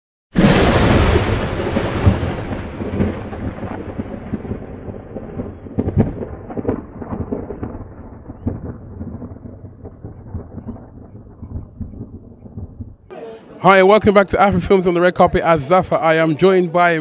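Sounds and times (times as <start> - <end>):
deep rumbling boom: 0.4 - 13.1
crackles: 0.8 - 13.1.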